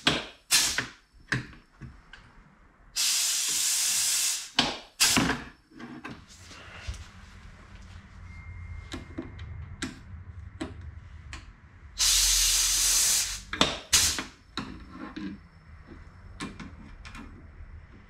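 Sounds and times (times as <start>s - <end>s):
sharp air blasts: 0.0s - 1.0s, 3.0s - 5.4s, 12.0s - 14.4s
compressed air hiss: 0.5s - 0.9s, 3.0s - 5.4s, 12.0s - 14.4s.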